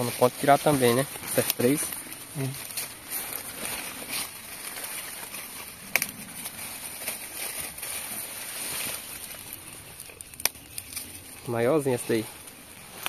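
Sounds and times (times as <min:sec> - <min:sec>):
dry leaves and vines rustling: 0:00.0 - 0:13.0.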